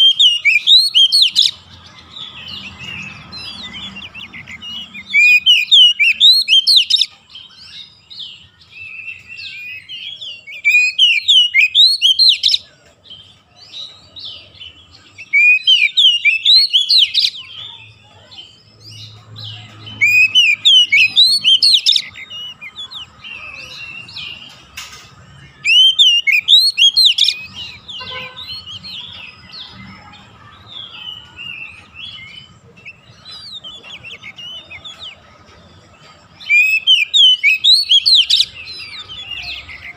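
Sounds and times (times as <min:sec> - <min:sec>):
bird singing whistled phrases: 0:00.0 - 0:01.6, 0:02.8 - 0:07.1, 0:08.8 - 0:12.6, 0:15.2 - 0:17.4, 0:19.8 - 0:24.4, 0:25.6 - 0:29.6, 0:36.4 - 0:39.9
soft bird twittering: 0:00.0 - 0:39.9.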